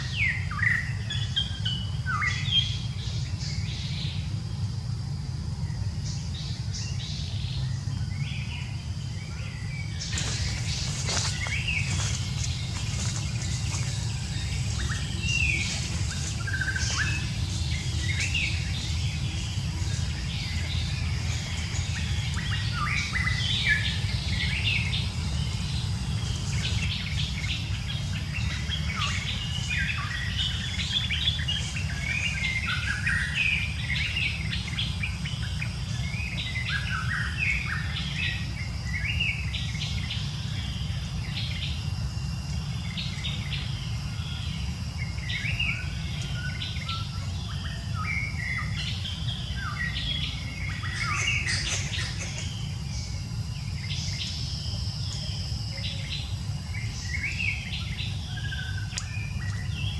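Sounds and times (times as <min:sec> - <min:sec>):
birds chirping and calling: 0:00.0 - 0:41.8, 0:42.8 - 0:59.9
high insect drone: 0:00.0 - 0:59.9
low rumble: 0:02.9 - 0:36.6.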